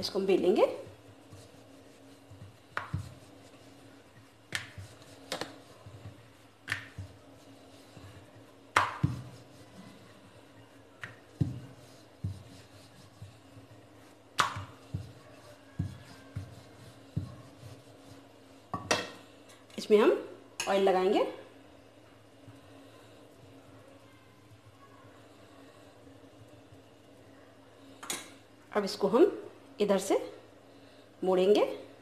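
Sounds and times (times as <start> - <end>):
faint steady hum: 0.0 - 32.0
rolling pin knocking on stone: 8.7 - 9.4, 11.0 - 12.4.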